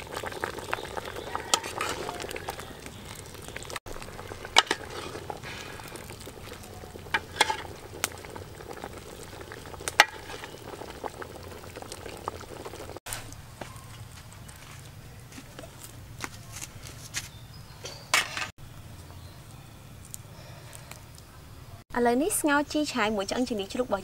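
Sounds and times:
soup boiling in a metal pot: 0.0s - 13.4s.

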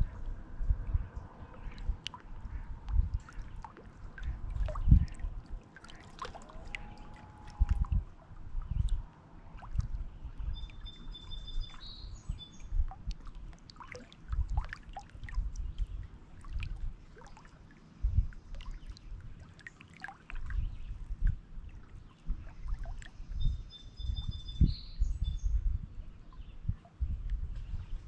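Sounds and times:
waves lapping against rocks: 3.2s - 7.9s
songbird singing: 9.7s - 13.3s, 22.0s - 26.8s.

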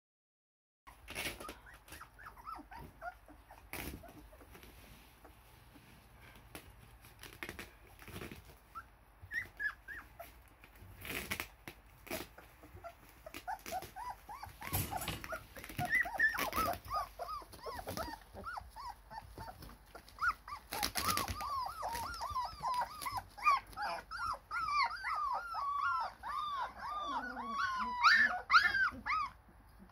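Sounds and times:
puppies whimpering and squeaking: 0.9s - 5.8s, 6.9s - 29.9s
knocks and rustles: 13.6s - 16.9s.

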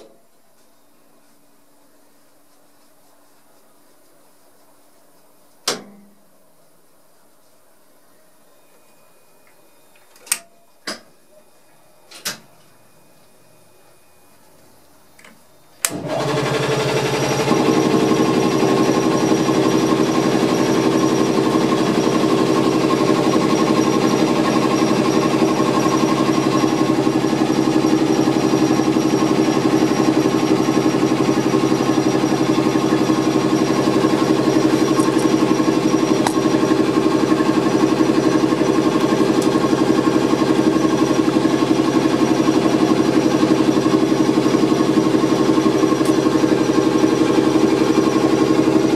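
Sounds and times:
air compressor chugging: 15.9s - 48.9s.

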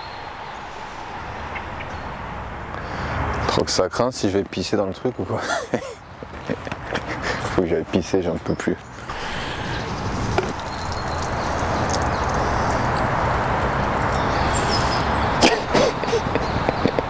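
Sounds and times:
urine stream splattering on leaves: 9.1s - 15.7s.

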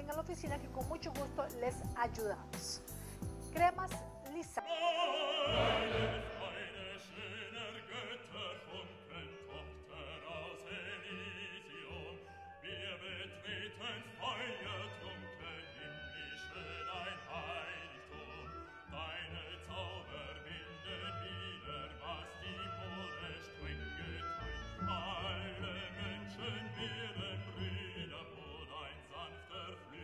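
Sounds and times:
operatic voice singing: 4.4s - 30.0s
orchestra playing: 5.2s - 6.9s.

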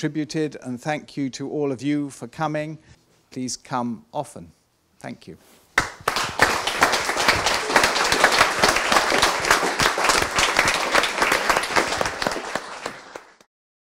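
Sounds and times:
audience applauding: 5.8s - 13.5s.

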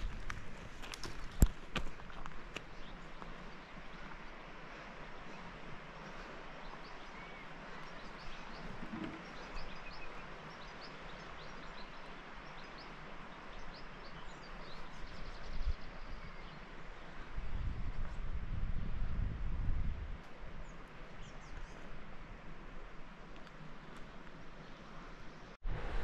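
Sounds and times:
open-air background hiss: 0.0s - 17.6s, 20.0s - 26.0s
small birds chirping: 2.5s - 18.2s, 20.6s - 21.9s.

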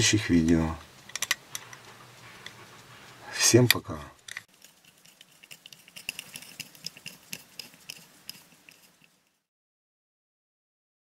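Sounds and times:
screwdriver turning screws: 4.2s - 9.3s.

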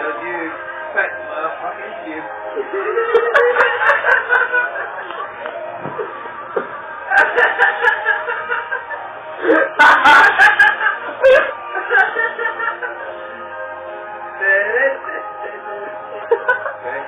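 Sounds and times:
recorded music playing: 0.0s - 17.0s
people laughing: 2.3s - 13.6s, 15.0s - 17.0s.

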